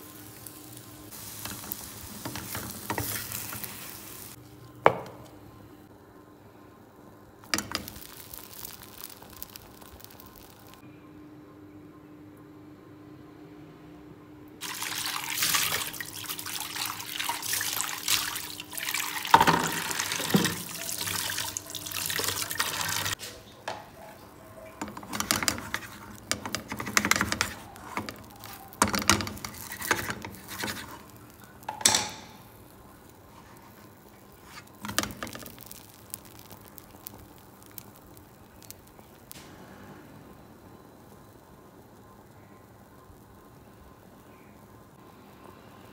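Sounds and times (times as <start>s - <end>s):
knocks and scrapes in frying pan: 24.8s - 31.1s.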